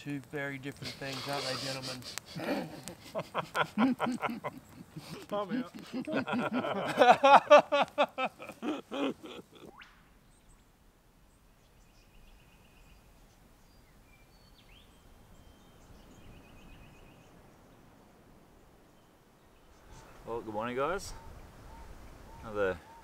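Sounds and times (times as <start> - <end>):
men laughing: 0.8 - 9.7
bird trills and chirps: 21.1 - 23.0.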